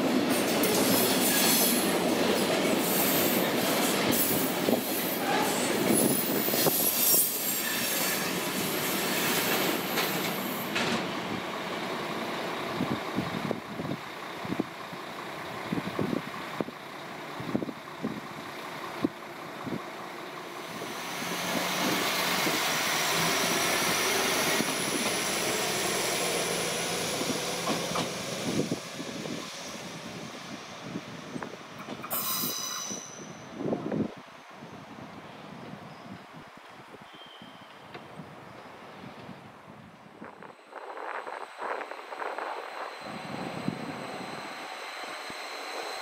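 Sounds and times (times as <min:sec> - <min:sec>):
train wheels squealing: 0:00.6 - 0:02.0, 0:02.8 - 0:10.8, 0:20.7 - 0:33.8, 0:35.5 - 0:36.3, 0:37.0 - 0:38.8, 0:40.5 - 0:46.0.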